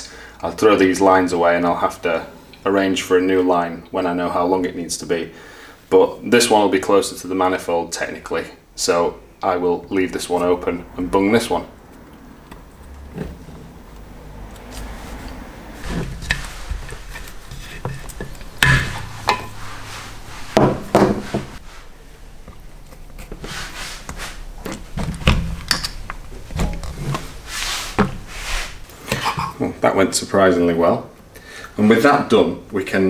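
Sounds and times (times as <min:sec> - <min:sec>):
metal parts knocking on workbench: 0:17.8 - 0:19.6, 0:20.6 - 0:21.6.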